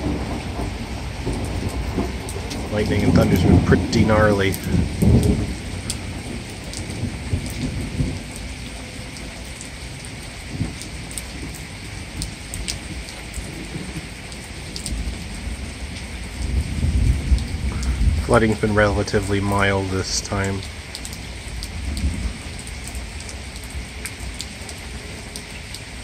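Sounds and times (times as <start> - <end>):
steady rain falling: 0.0 - 26.0
close water drips: 17.2 - 26.0.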